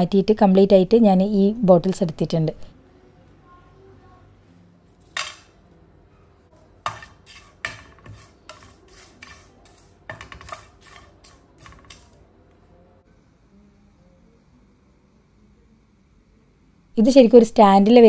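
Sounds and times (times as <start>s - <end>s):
spatula stirring dry leaves in pan: 6.8s - 12.2s.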